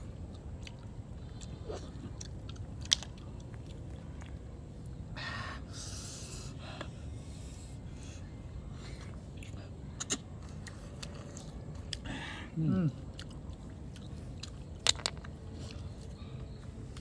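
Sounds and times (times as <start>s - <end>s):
person chewing: 0.1s - 4.4s, 8.9s - 12.0s, 12.8s - 17.0s.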